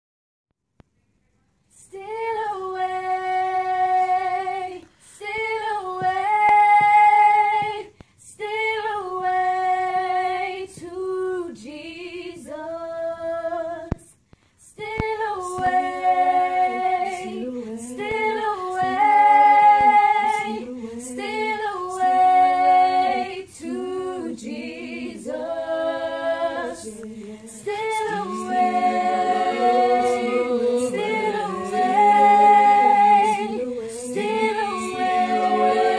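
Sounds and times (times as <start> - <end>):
group singing a cappella: 1.7 - 35.9.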